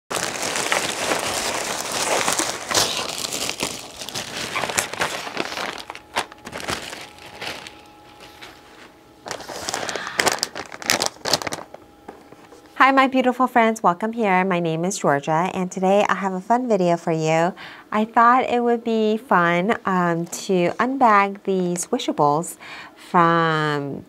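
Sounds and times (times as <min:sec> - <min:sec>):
plastic bags crinkling: 0:00.1 - 0:12.6.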